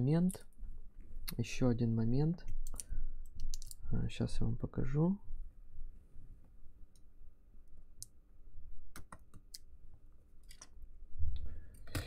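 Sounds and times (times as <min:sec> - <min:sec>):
fingers clicking and tapping device: 0:08.9 - 0:09.7.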